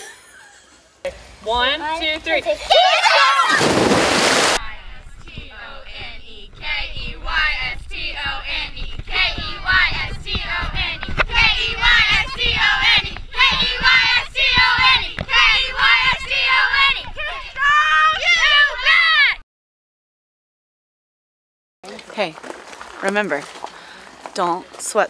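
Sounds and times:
girls singing in unison: 4.7 - 18.2.

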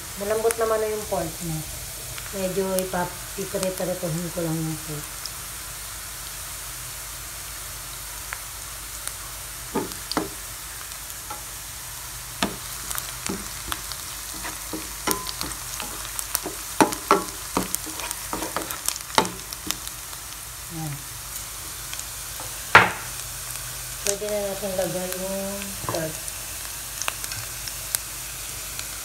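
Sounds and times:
onion sizzling in hot oil: 0.0 - 29.0
spatula scraping and tapping pan: 12.4 - 19.9.

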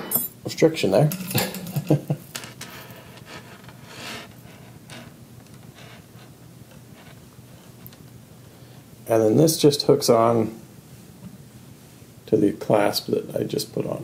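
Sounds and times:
metal chain clinking: 0.0 - 0.4, 1.1 - 2.0
chain rubbing and dragging: 1.1 - 5.1.

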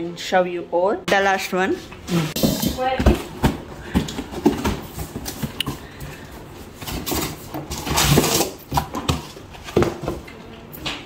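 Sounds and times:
cardboard rustling scrape: 2.1 - 10.2.

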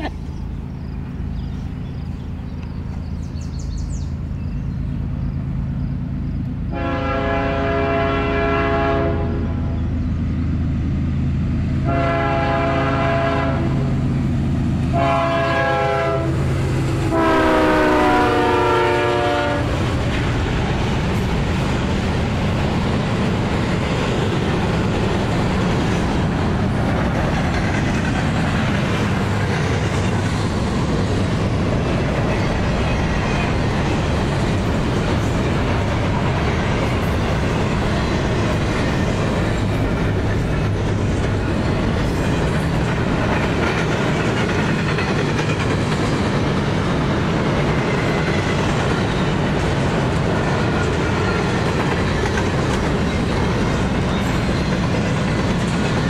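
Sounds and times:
locomotive engine drone: 0.0 - 56.0
train wheels rumbling on rail: 0.0 - 56.0
locomotive air horn blasts: 6.7 - 9.6, 11.8 - 13.8, 14.9 - 16.4, 17.1 - 19.8.

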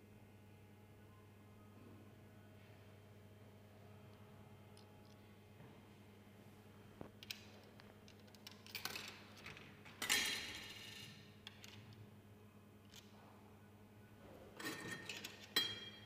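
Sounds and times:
metallic clatter of coins: 8.2 - 11.8.

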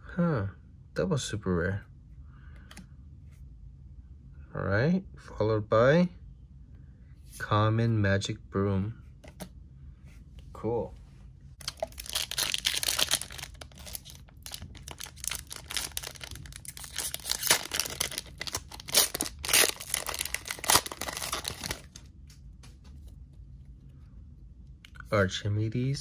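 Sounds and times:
wrapper ripping: 11.6 - 22.0
wrapper crinkling: 11.6 - 22.1.

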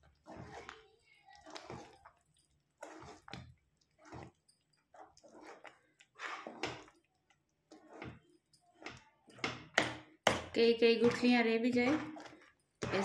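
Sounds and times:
spoon stirring thick dough in pot: 0.0 - 13.0.

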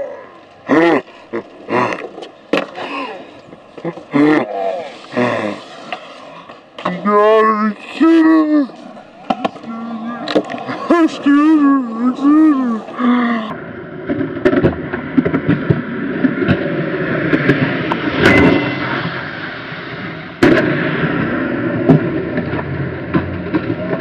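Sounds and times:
skateboard wheels rolling on concrete: 0.0 - 24.0
skateboard clacks popping and landing: 1.4 - 4.1, 8.8 - 10.8, 14.0 - 16.7, 21.9 - 24.0.

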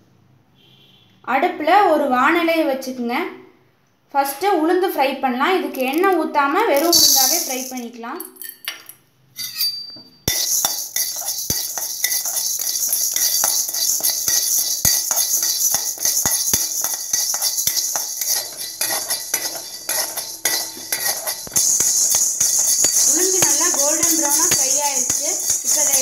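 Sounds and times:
grains rattling in metal pan: 6.8 - 7.9, 10.3 - 26.0
utensil clinking on metal: 6.8 - 26.0.

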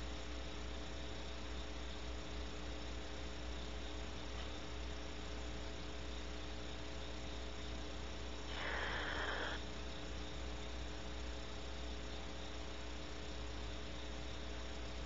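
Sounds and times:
electrical hum: 0.0 - 15.0
owl harsh hissing call: 8.5 - 9.6.

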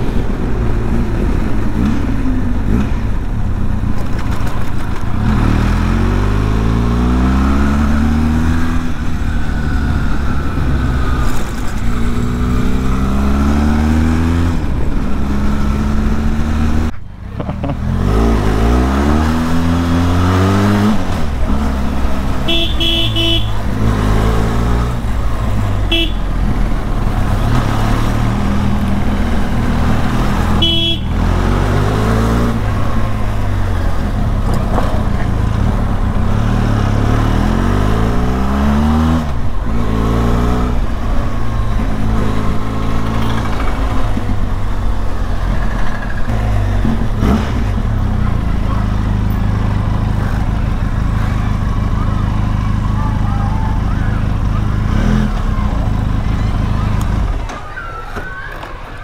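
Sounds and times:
motorcycle engine revving through gears: 0.0 - 53.0, 53.8 - 57.6
vehicle horn beeping: 22.4 - 23.7, 25.8 - 26.4, 30.5 - 31.2.

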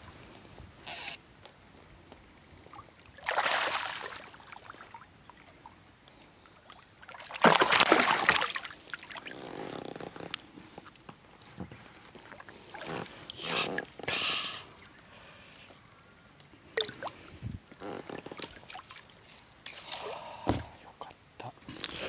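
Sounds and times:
water sloshing: 3.0 - 5.1, 7.2 - 10.0, 16.8 - 17.2
fish splashing in water: 3.2 - 4.4, 7.2 - 9.2.

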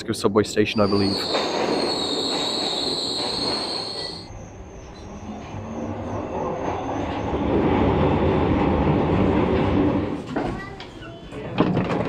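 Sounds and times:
low rumble of train running: 0.0 - 11.5
train wheel squeal: 0.5 - 8.8.

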